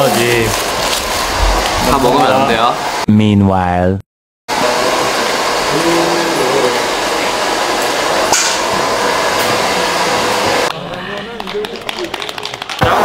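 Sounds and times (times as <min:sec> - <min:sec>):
loud rushing noise: 0:00.0 - 0:03.1, 0:04.5 - 0:10.7.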